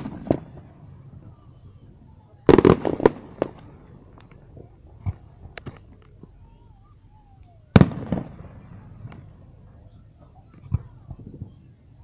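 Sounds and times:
firework pops and cracks: 0:00.0 - 0:00.8, 0:02.4 - 0:06.4, 0:07.7 - 0:09.4, 0:10.2 - 0:11.7
loud firework bangs: 0:00.0 - 0:01.5, 0:02.5 - 0:06.3, 0:07.7 - 0:11.7.

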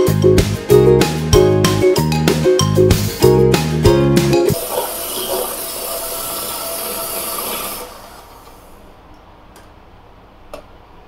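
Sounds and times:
electric hand mixer whipping cream: 0:04.6 - 0:08.7.

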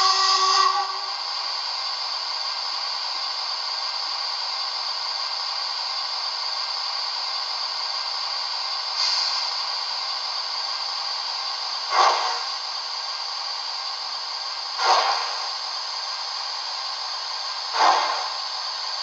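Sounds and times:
steam engine hiss: 0:00.0 - 0:19.0
short loud burst: 0:14.8 - 0:15.6, 0:17.8 - 0:18.6.

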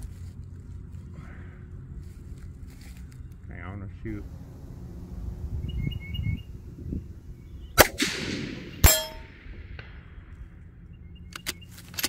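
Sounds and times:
rifle shots: 0:07.8 - 0:10.5
metallic ring: 0:08.8 - 0:09.4.

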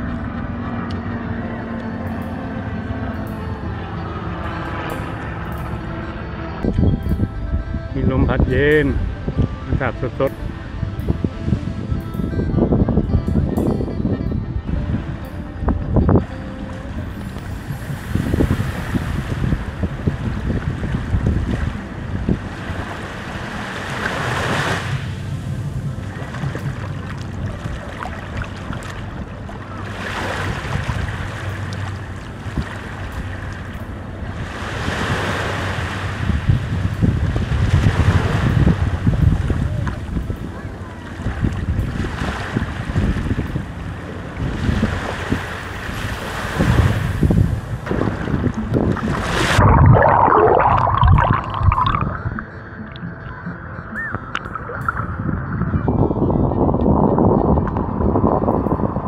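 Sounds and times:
muffled wavering tone: 0:00.0 - 0:23.7, 0:47.4 - 0:59.0
wind buffeting microphone: 0:06.4 - 0:59.0
ocean surf washing ashore: 0:14.7 - 0:52.2.

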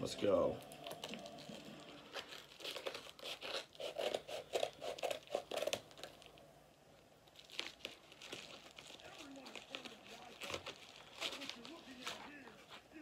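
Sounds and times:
paper rustling: 0:00.6 - 0:06.4, 0:07.3 - 0:13.0
scissors cutting paper: 0:00.7 - 0:06.3, 0:08.9 - 0:12.4.

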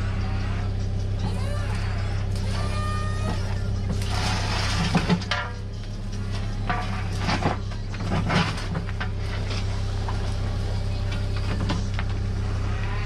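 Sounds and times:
excavator diesel engine running: 0:00.0 - 0:13.0
bucket scraping dirt and stones: 0:03.3 - 0:05.6, 0:06.3 - 0:10.4.

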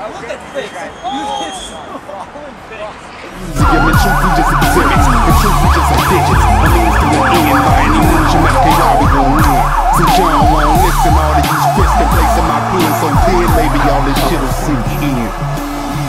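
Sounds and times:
hip-hop backing track: 0:03.3 - 0:16.0
heavy bass line: 0:03.4 - 0:16.0
siren-like wail: 0:03.4 - 0:16.0
steady drum beat: 0:03.6 - 0:16.0.

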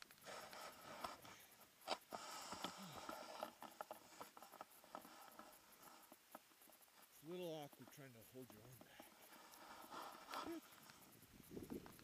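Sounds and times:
small clicks: 0:00.0 - 0:12.0
rustling of gloves and jacket: 0:00.2 - 0:12.0.

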